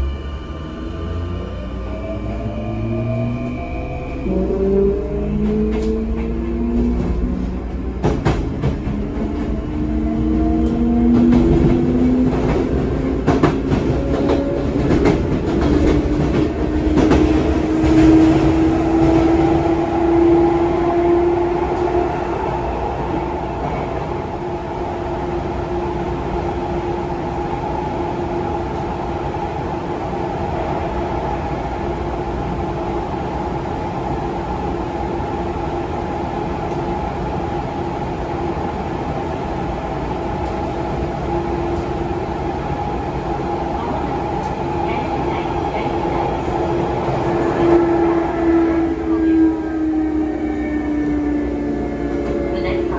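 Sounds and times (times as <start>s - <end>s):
train wheels clicking on rails: 10.2s - 20.5s.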